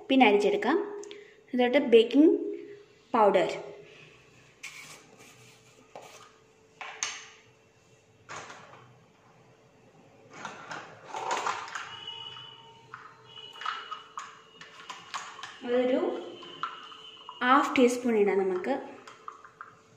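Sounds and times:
plastic container handling noise: 0:10.3 - 0:12.1.

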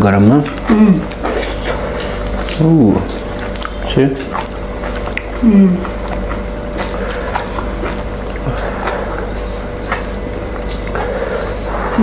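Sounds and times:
noodles chewed and slurped: 0:00.0 - 0:12.0
steady low hum: 0:00.0 - 0:12.0
wet mouth clicks and smacks: 0:00.5 - 0:11.1.

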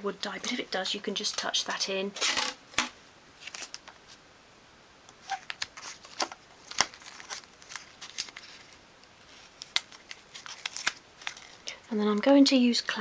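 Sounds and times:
masking tape crackling: 0:05.1 - 0:13.0.

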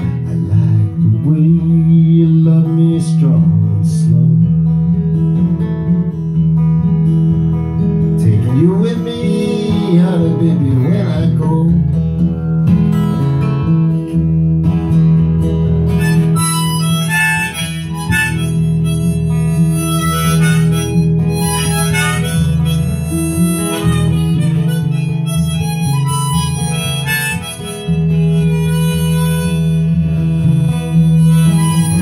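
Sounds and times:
acoustic guitar accompaniment: 0:00.0 - 0:32.0
harmonica melody: 0:15.8 - 0:32.0.

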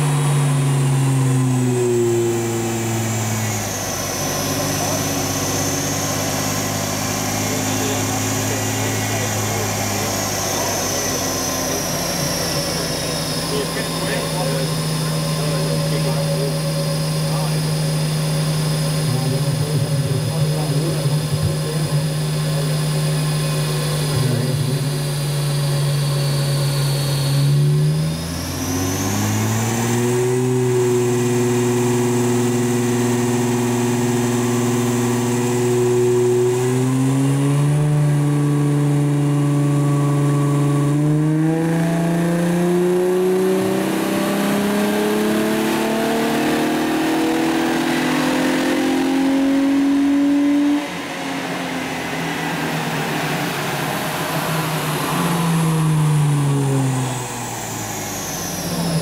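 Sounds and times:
car engine revving on dyno rollers: 0:00.0 - 0:59.0.

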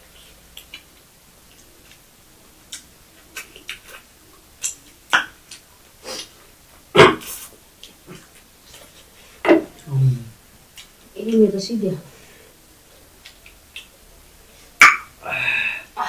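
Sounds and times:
wet mouth smacks and chewing: 0:02.7 - 0:04.0.

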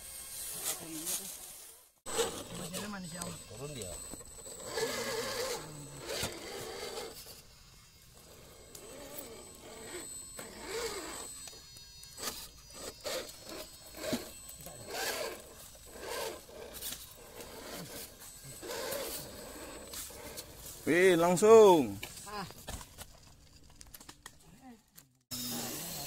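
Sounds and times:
electric motor whine: 0:00.0 - 0:22.5, 0:25.3 - 0:26.0
tyres scraping on dirt: 0:02.1 - 0:07.4, 0:12.2 - 0:23.7.

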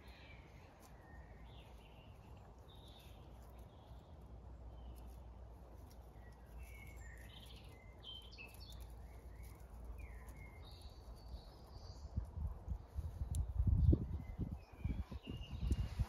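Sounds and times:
bird chirps and whistled song: 0:06.2 - 0:12.2, 0:13.0 - 0:16.0.

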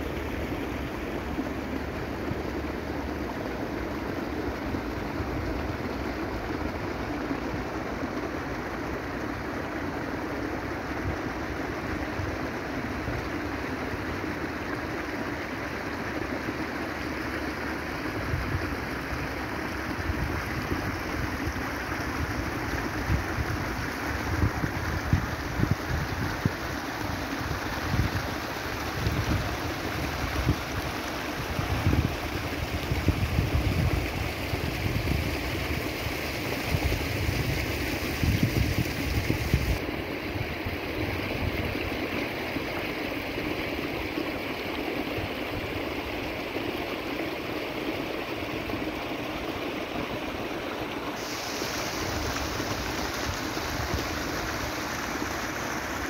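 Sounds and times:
stream running over stones: 0:00.0 - 0:56.0
wind buffeting microphone: 0:23.1 - 0:26.6, 0:27.8 - 0:35.4, 0:36.7 - 0:39.8.

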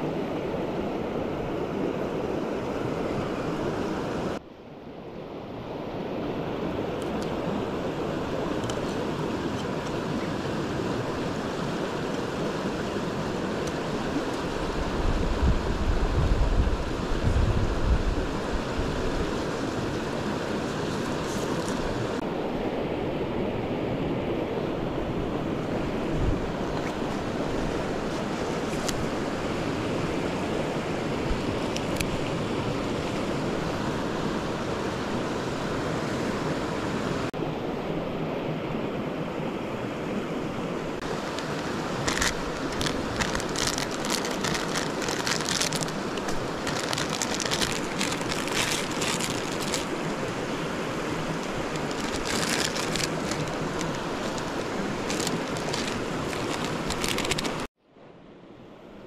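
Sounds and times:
mountain stream rushing: 0:00.0 - 0:57.7
sharp crackles and clicks: 0:41.3 - 0:49.9, 0:51.4 - 0:57.7.

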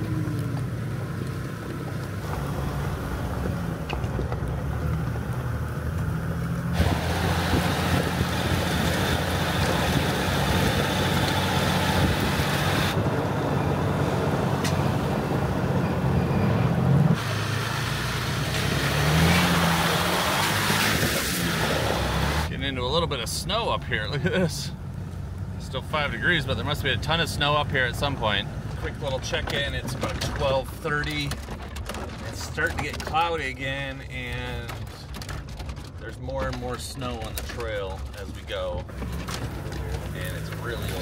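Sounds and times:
tyres crunching over gravel: 0:00.0 - 0:13.0, 0:18.0 - 0:41.0
engine running at crawling speed: 0:00.0 - 0:41.0.

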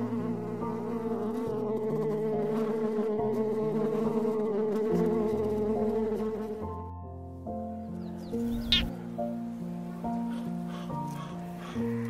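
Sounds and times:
flying insect buzzing: 0:00.0 - 0:06.7, 0:08.3 - 0:09.0
soft background music: 0:00.0 - 0:12.0.

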